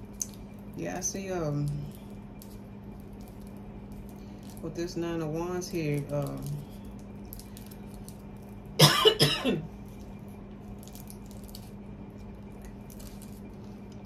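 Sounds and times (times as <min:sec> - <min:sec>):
steady low hum: 0:00.0 - 0:14.0
woman coughing: 0:08.8 - 0:09.7.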